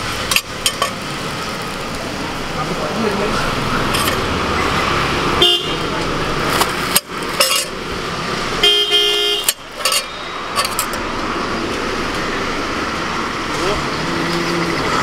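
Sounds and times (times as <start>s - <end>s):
road traffic: 0.0s - 15.0s
vehicle horn honking: 5.4s - 5.9s, 8.6s - 10.4s.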